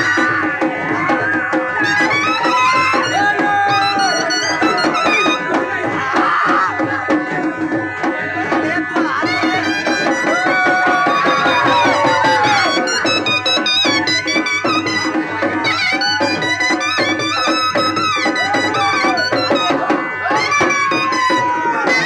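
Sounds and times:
drums beating: 0.0s - 22.0s
shehnai melody: 1.6s - 6.0s, 9.0s - 22.0s.

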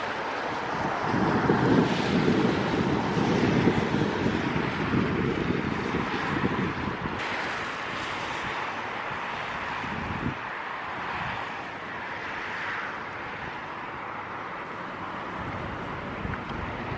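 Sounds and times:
wind buffeting microphone: 0.0s - 16.9s.

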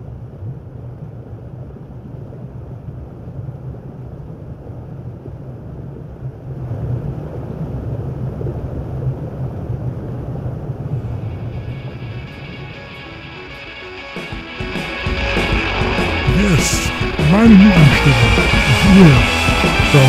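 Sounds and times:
spaceship engine rumble: 10.9s - 19.4s.

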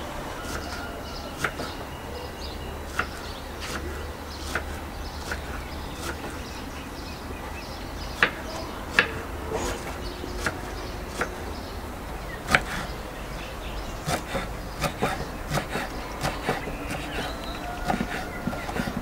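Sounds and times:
sharp clicks and knocks: 8.1s - 13.0s, 14.0s - 19.0s.

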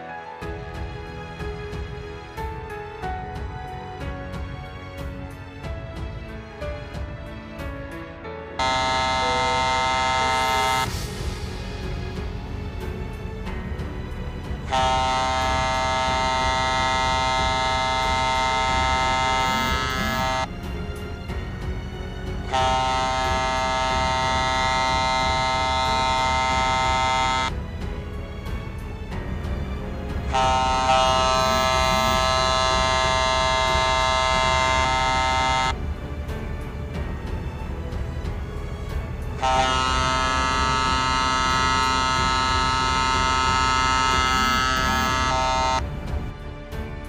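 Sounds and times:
ship's horn blast: 8.6s - 12.0s, 14.5s - 20.5s, 22.2s - 27.6s, 30.0s - 35.8s, 39.2s - 45.9s
harbour noise: 8.6s - 13.0s, 14.2s - 20.5s, 21.6s - 46.0s.

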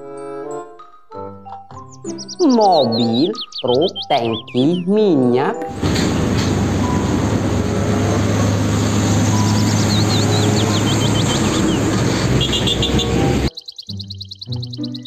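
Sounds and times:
high chirps: 1.7s - 5.8s, 8.3s - 15.0s
road noise: 2.1s - 14.9s
truck engine running: 5.7s - 13.5s.

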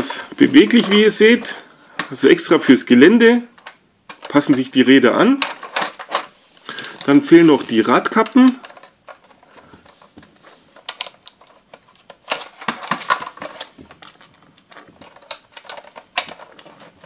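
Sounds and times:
plastic toy parts clicking: 8.1s - 9.5s, 10.8s - 17.0s.

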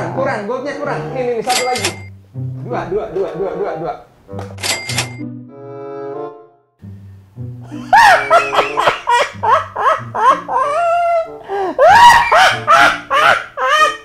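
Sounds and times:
background music: 0.0s - 14.0s
man laughing loudly: 7.6s - 14.0s.

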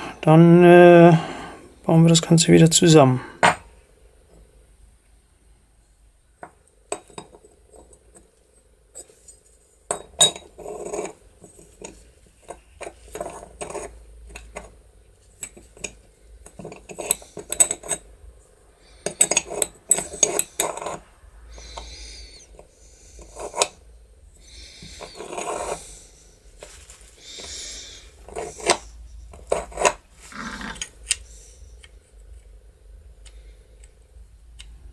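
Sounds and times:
small metal parts clinking: 15.4s - 18.0s.

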